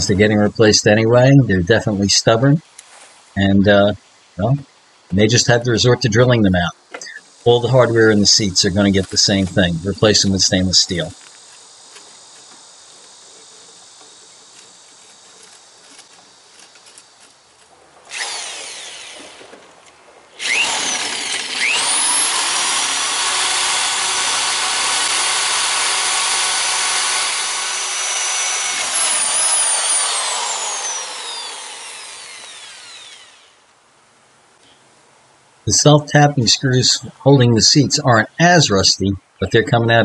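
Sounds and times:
electric drill boring into bolt: 18.1s - 19.6s, 20.4s - 33.6s.

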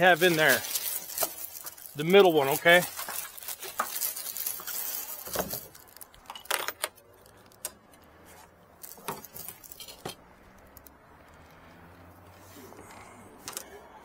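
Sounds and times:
rustle: 0.1s - 6.5s.

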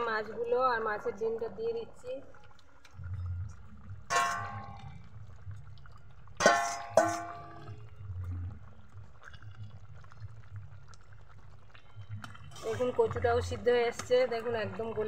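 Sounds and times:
spatula stirring liquid: 3.8s - 15.0s
metal clangs: 4.1s - 4.9s, 6.4s - 7.7s.

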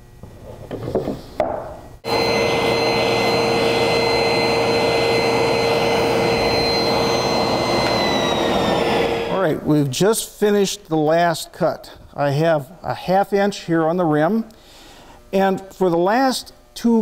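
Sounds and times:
table saw cutting wood: 2.0s - 9.6s
shop vac running: 2.0s - 10.0s.

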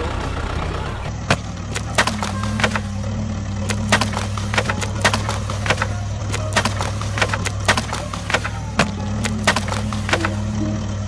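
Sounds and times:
toy bricks clicking and clattering: 1.3s - 3.0s, 3.6s - 10.5s.

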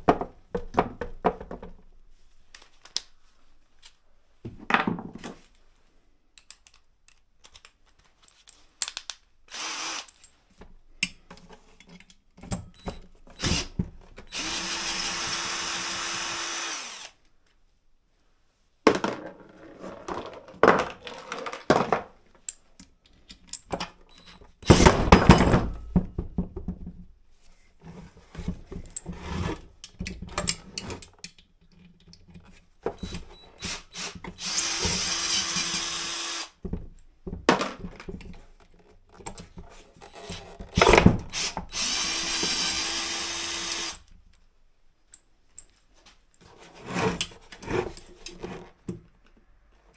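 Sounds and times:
cordless drill running: 9.5s - 10.1s, 13.4s - 13.7s, 14.3s - 17.2s, 33.6s - 36.6s, 41.3s - 44.0s.

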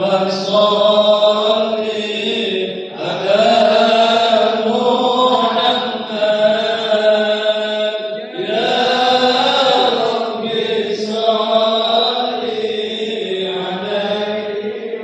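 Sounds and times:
devotional chanting voices: 0.0s - 15.0s.

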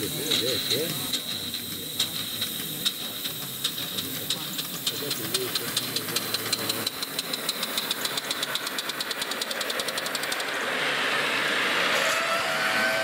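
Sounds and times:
steam hissing: 0.0s - 13.0s
steam locomotive exhaust beats: 0.0s - 13.0s
whistle-like tone: 11.9s - 13.0s.

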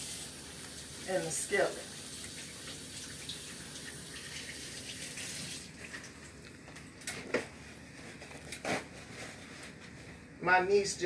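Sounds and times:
faucet running into sink: 0.0s - 6.2s.

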